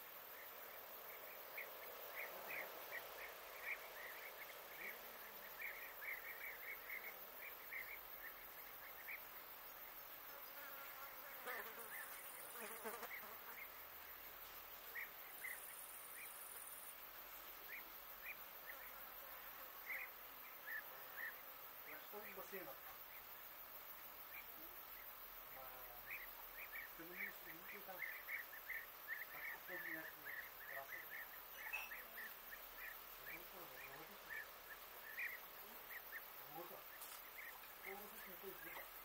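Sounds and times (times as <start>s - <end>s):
insects buzzing: 0.0s - 39.0s
short high chirps: 31.6s - 32.0s.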